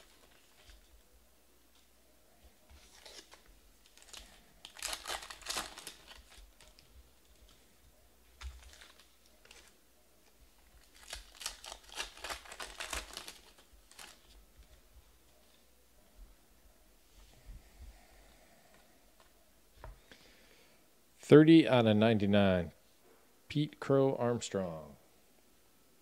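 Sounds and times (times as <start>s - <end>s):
card pack wrapper crinkling: 0.0s - 0.9s, 2.8s - 7.6s, 8.4s - 9.8s, 10.6s - 14.4s
trading cards clicking and rustling: 2.8s - 7.6s, 10.8s - 14.3s.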